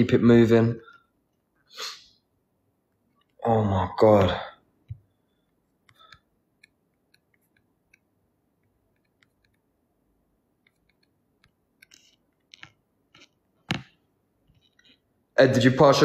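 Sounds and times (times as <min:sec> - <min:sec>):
small clicks and taps: 0:04.8 - 0:09.7, 0:10.6 - 0:15.0.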